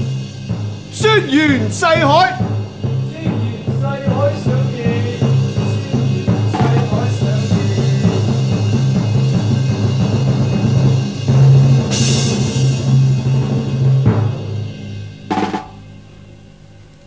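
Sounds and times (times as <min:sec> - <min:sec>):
low drum beat: 0:00.0 - 0:14.6, 0:15.3 - 0:15.9
dramatic background music: 0:00.0 - 0:16.1.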